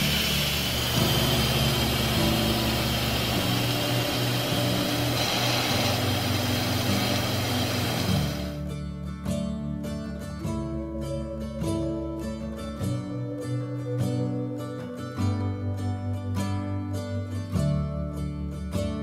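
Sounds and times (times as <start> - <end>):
pressure cooker venting steam: 0.0 - 8.6.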